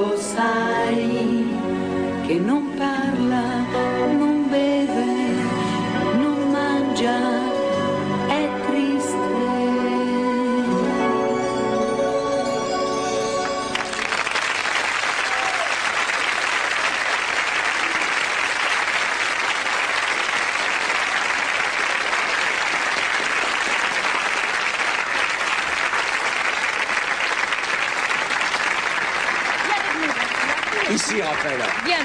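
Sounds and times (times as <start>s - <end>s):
audience applauding: 13.4s - 32.0s.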